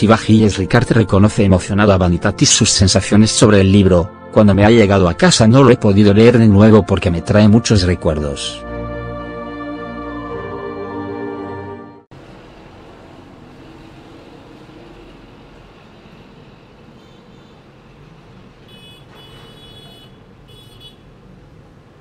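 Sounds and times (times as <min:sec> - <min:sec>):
steady background noise: 0:12.1 - 0:19.6.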